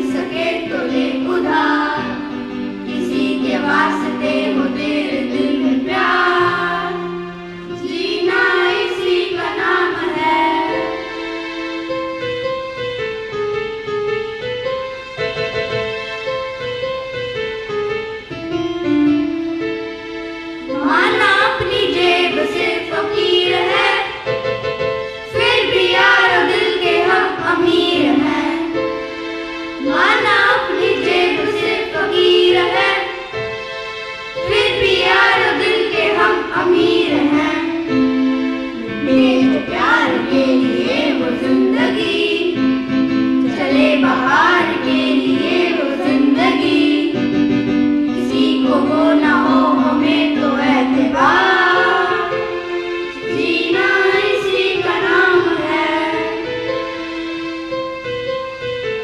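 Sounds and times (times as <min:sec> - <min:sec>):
children singing in unison: 0:00.0 - 0:11.7, 0:20.7 - 0:24.4, 0:25.2 - 0:29.2, 0:29.8 - 0:33.6, 0:34.4 - 0:47.4, 0:48.1 - 0:57.2
instrumental accompaniment: 0:00.0 - 0:59.0.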